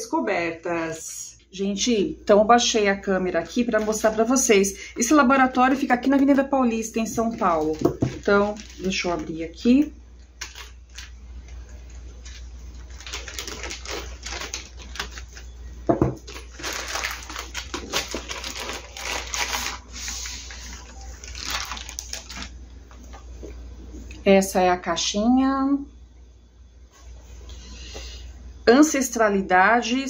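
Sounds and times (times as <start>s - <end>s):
plastic bag crinkling: 5.5s - 23.2s
scissors snipping plastic bag: 10.4s - 11.1s.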